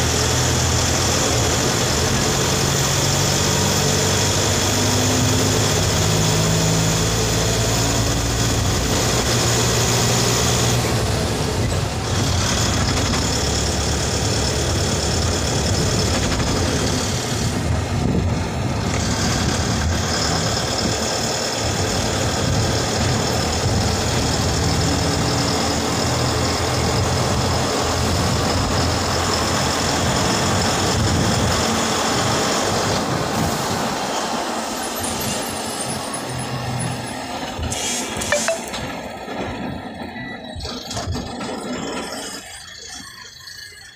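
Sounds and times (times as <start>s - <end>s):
heavy vehicle engine running: 0.0s - 43.6s.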